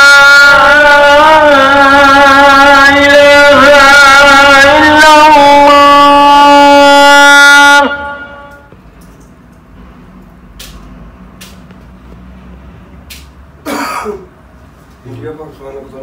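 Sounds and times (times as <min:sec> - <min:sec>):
vehicle horn blast: 0:05.0 - 0:08.8.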